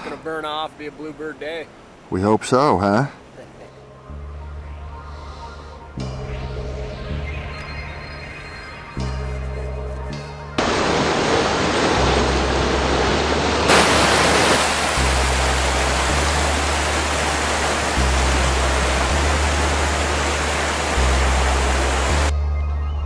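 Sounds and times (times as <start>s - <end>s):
low sustained music notes: 3.4s - 23.0s
stream rushing over boulders: 10.6s - 22.3s.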